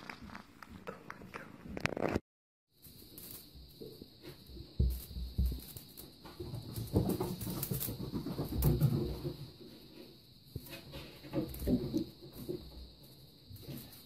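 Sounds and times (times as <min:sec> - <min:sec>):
kittens' paws thumping and rustling: 0:02.8 - 0:14.0.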